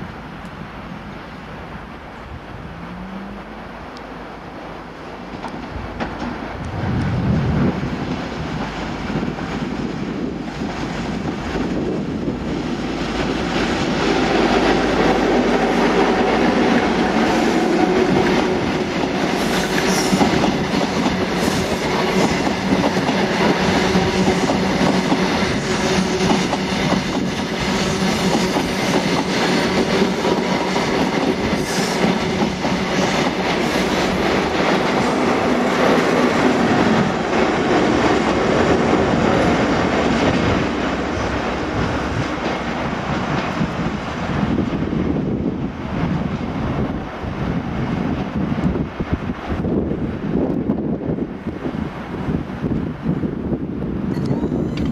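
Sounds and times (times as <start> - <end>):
train wheels clattering: 13.0 - 43.8.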